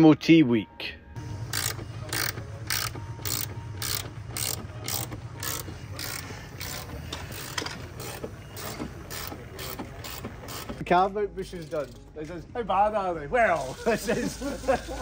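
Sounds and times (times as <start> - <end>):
ratchet pawl rasping: 1.4 - 10.8, 11.5 - 12.0.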